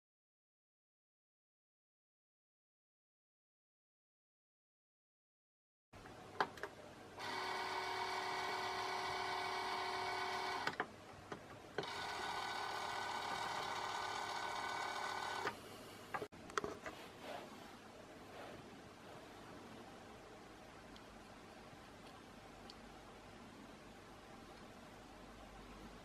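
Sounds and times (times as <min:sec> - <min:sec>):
telescope drive motor whirring: 0:07.2 - 0:10.8, 0:11.8 - 0:15.6.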